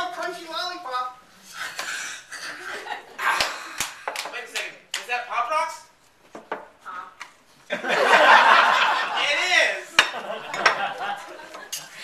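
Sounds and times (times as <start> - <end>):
audience laughter: 7.7 - 9.3, 10.0 - 12.0.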